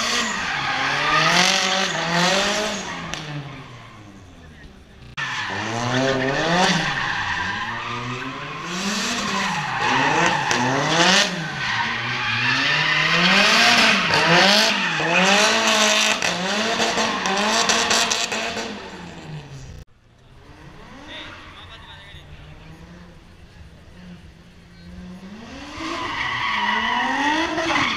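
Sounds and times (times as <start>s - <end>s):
tyres squealing on tarmac: 0.0s - 18.3s, 20.7s - 22.9s, 24.0s - 27.9s
car engine revving: 0.0s - 27.9s.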